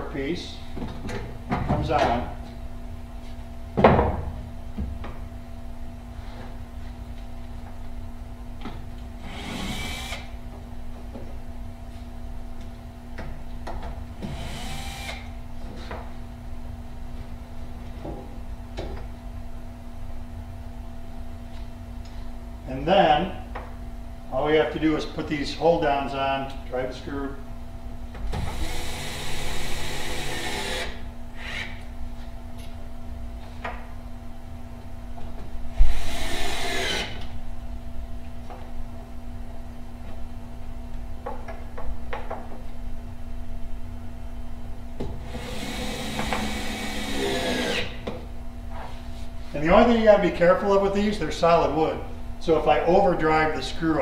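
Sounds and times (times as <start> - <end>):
steady low hum: 0.0 - 54.0
cordless drill running: 9.2 - 10.3, 14.3 - 15.3, 45.3 - 48.0.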